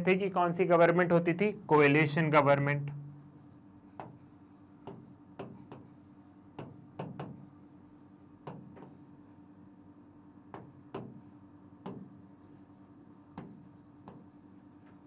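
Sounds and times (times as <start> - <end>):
faint steady hum: 0.0 - 15.0
marker writing on whiteboard: 1.8 - 9.2, 10.5 - 15.0.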